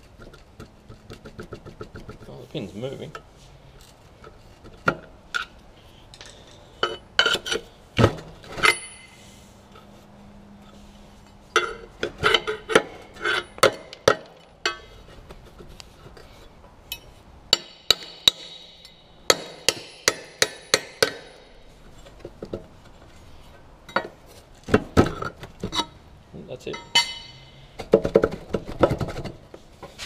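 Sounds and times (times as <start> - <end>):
hammer striking metal pin: 16.9 - 21.6, 26.7 - 27.5.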